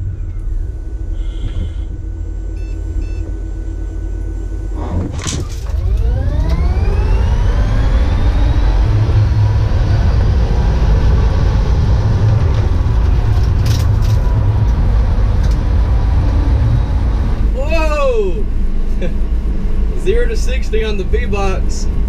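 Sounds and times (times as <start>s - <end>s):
road and tyre rumble: 0.0s - 22.0s
electric motor whining: 4.1s - 17.6s.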